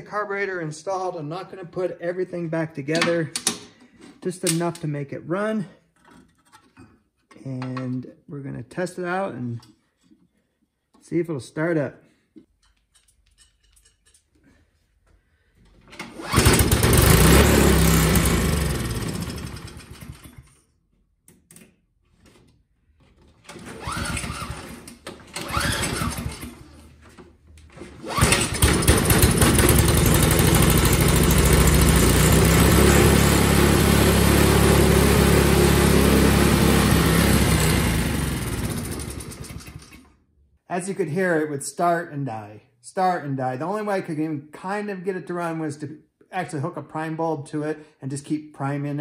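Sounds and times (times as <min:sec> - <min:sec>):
snowblower engine starting and dying: 0:16.0 - 0:20.6, 0:23.4 - 0:26.8, 0:27.8 - 0:40.2.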